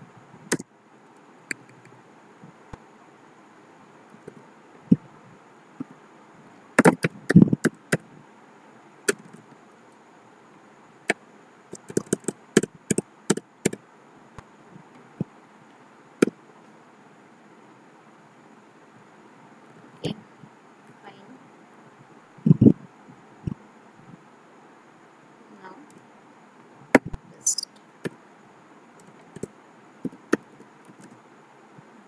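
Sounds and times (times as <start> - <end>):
computer keyboard clicks: 11.7 - 13.8.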